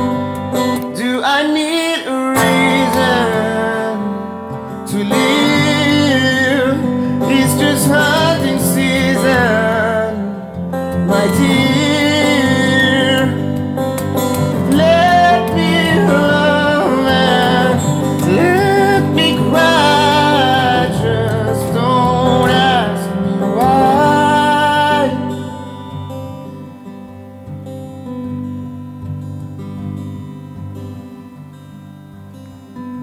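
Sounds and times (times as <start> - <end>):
guitar accompaniment: 0.0 - 33.0
man singing slow song: 0.8 - 26.1.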